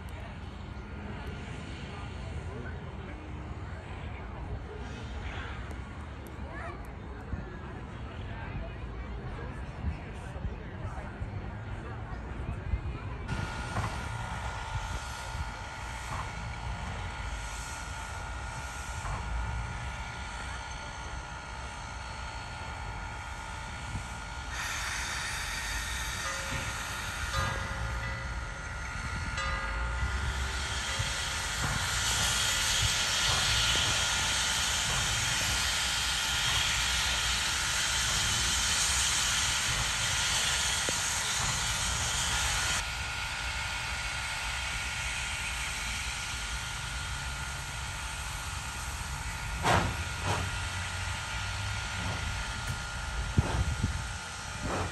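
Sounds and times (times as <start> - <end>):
steam locomotive rumble: 0.0 - 54.9
steam hissing: 13.3 - 54.9.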